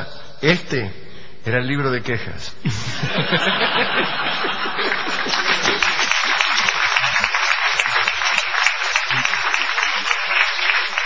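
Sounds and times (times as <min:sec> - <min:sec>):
audience laughter: 0:02.8 - 0:11.0
audience applauding: 0:04.0 - 0:11.0.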